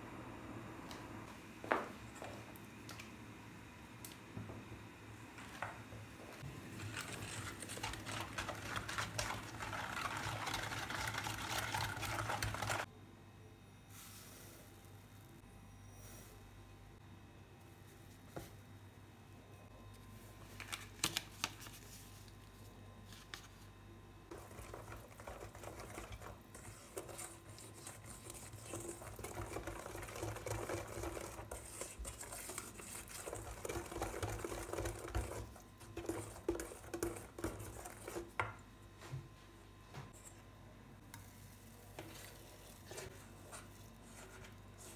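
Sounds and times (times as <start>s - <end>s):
whisk beating batter in bowl: 6.7s - 12.9s, 24.3s - 38.5s, 41.9s - 44.9s.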